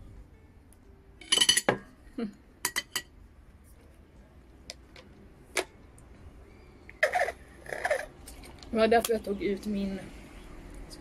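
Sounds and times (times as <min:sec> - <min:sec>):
tableware clicks and taps: 0:01.2 - 0:01.9, 0:02.6 - 0:03.1
tableware clattering: 0:01.2 - 0:02.0, 0:02.6 - 0:03.1.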